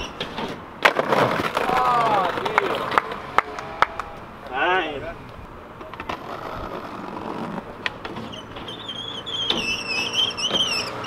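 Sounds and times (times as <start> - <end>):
skateboard wheels rolling on paving: 0.0 - 11.0
skateboard sliding on steel rail: 5.8 - 11.0.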